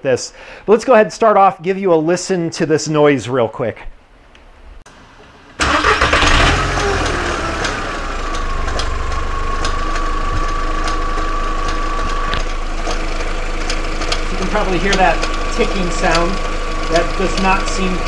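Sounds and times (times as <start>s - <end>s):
car engine starting and idling: 4.9s - 18.0s
irregular ticking: 8.2s - 18.0s.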